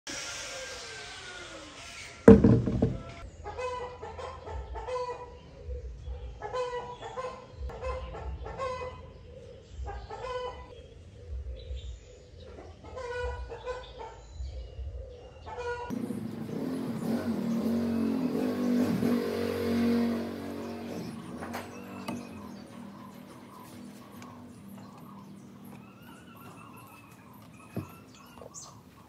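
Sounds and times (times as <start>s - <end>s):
loud thump: 2.3s - 3.2s
hen clucking: 6.4s - 9.0s, 9.9s - 10.8s, 12.6s - 14.2s, 15.5s - 16.0s, 20.6s - 29.0s.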